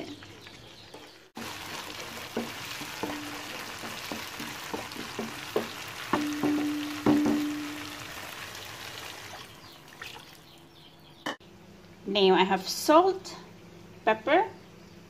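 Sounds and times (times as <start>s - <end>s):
paste sizzling in hot oil: 1.3s - 9.4s
spatula knocking against pan: 2.3s - 7.9s.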